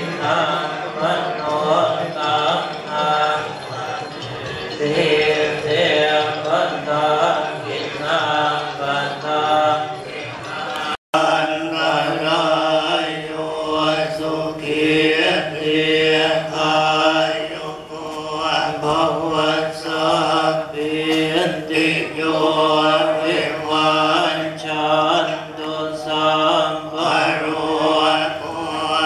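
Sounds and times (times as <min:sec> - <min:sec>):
monks chanting: 0:00.0 - 0:29.0.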